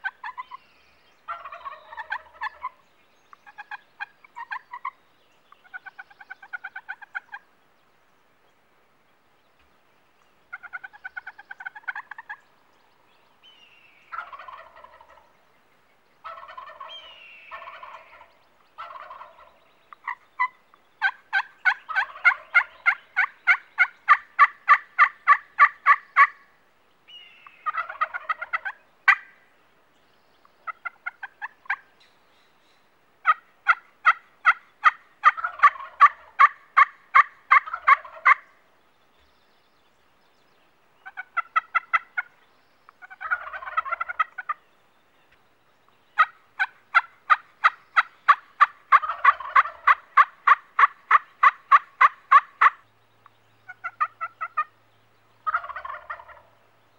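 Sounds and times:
turkeys yelping: 0.0 - 0.5, 1.3 - 2.8, 3.4 - 5.0, 5.7 - 7.5, 10.5 - 12.4, 14.1 - 15.3, 16.2 - 26.5, 27.5 - 29.4, 30.6 - 31.9, 33.2 - 38.6, 41.0 - 42.4, 43.0 - 44.6, 46.2 - 52.9, 53.6 - 54.8, 55.4 - 56.7.

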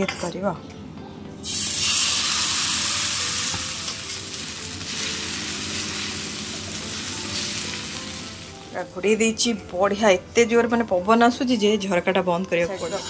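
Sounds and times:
batter sizzling in hot oil: 1.4 - 9.0.

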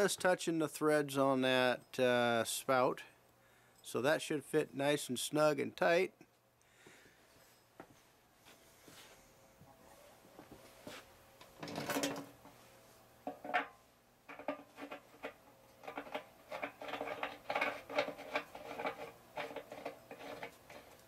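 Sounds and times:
metal scraping: 14.3 - 21.0
small clicks and scrapes: 14.3 - 21.0.

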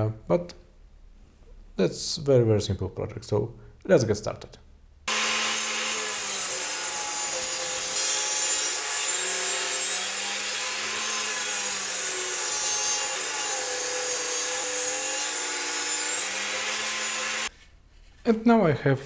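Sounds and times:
table saw cutting wood: 5.1 - 17.5.

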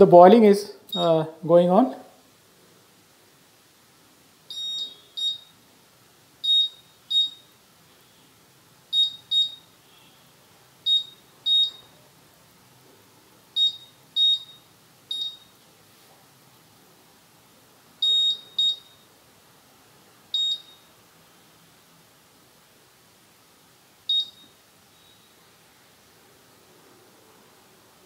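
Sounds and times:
short high-pitched beeps: 0.9 - 1.2, 4.5 - 5.6, 6.4 - 7.5, 8.9 - 10.1, 10.9 - 11.9, 13.6 - 15.6, 18.0 - 19.1, 20.3 - 20.9, 24.1 - 25.4.

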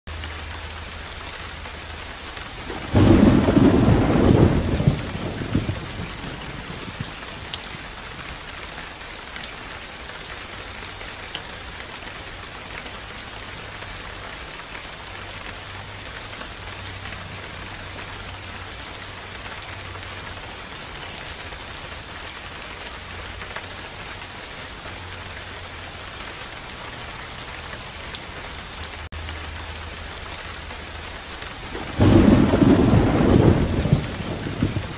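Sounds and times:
steady rain: 0.0 - 34.9
thunder clap rumbling: 2.6 - 8.6, 31.6 - 34.9.

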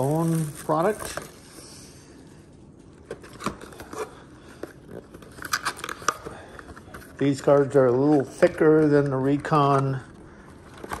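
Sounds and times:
card stock rustling: 0.0 - 1.4.

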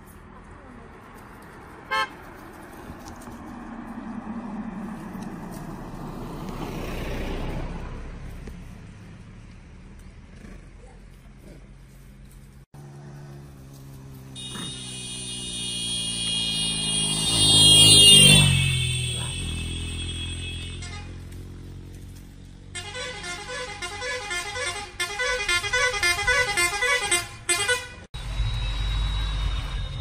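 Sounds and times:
car passing: 0.2 - 10.8, 12.8 - 23.7.

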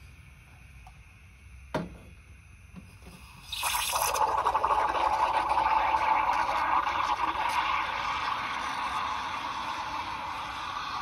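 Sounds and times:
sharp knock: 1.7 - 2.1
steam wand hissing frothing milk: 3.0 - 11.0.

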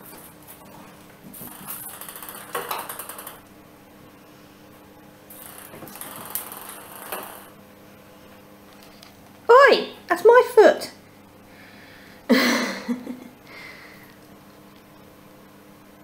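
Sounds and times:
ball clicking and rolling on tiles: 1.4 - 3.4, 5.4 - 7.5.

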